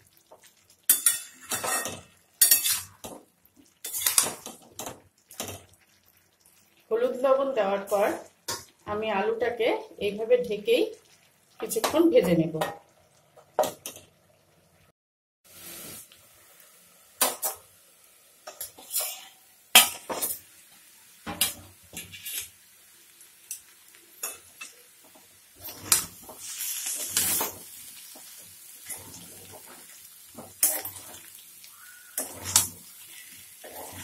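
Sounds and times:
potatoes sizzling: 0.0s - 14.9s, 15.5s - 34.0s
spatula scraping pan: 0.9s - 3.2s, 3.8s - 4.6s, 18.5s - 20.4s, 21.4s - 22.6s, 25.6s - 31.3s, 32.0s - 34.0s.

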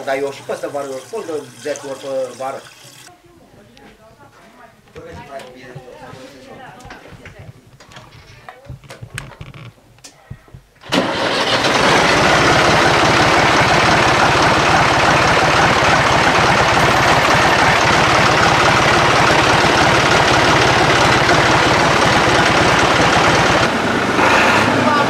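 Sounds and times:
diesel tractor engine starting and running: 10.8s - 25.0s.

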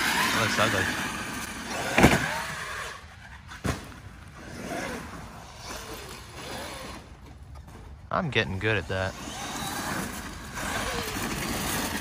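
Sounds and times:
electric motor whining: 9.1s - 12.0s.

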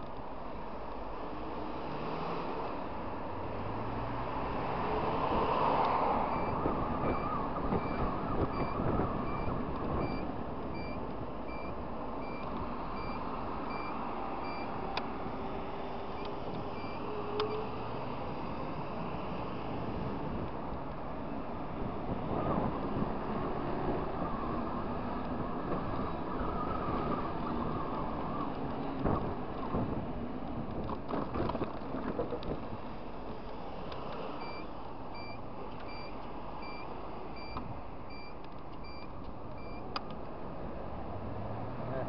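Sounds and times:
wind noise: 4.4s - 33.1s.

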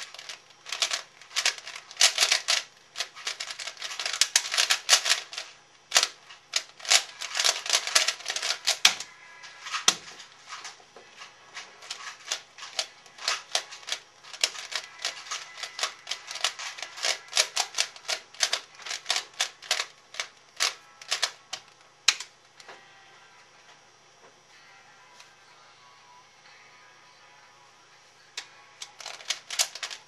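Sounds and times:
puzzle cube plastic clacks: 0.0s - 22.3s, 28.8s - 30.0s.

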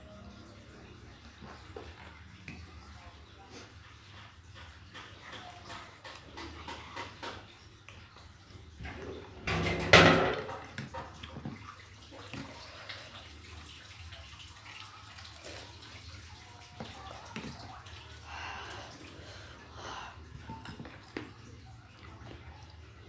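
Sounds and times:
soft chewing: 14.6s - 23.0s.

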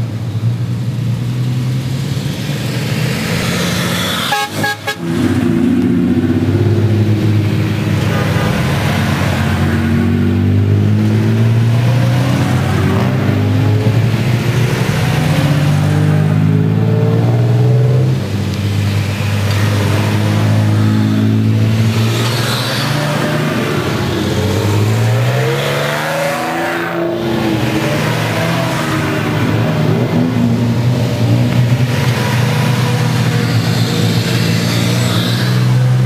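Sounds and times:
horn toots: 4.0s - 5.4s.

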